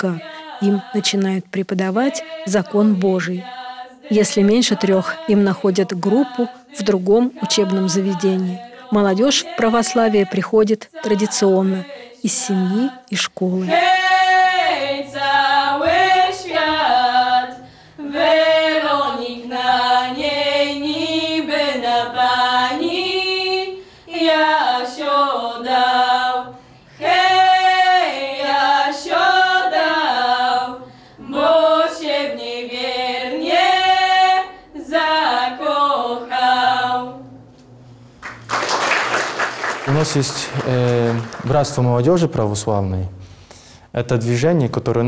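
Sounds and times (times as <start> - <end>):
women singing a cappella: 0.0 - 37.6
singers breathing: 17.5 - 18.0, 23.8 - 24.2, 26.5 - 27.0, 30.8 - 31.3, 43.2 - 43.9.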